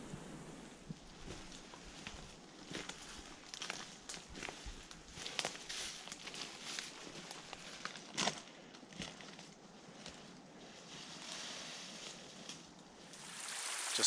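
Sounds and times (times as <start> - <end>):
faint steady hiss: 0.0 - 7.9, 9.6 - 14.0
footsteps on rough ground: 0.9 - 11.2.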